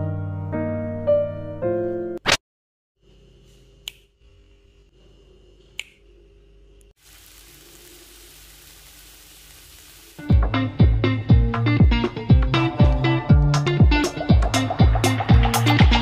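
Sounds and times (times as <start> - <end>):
finger snap: 3.8 - 4.1, 5.8 - 6.0
food sizzling in a pan: 7.0 - 10.4.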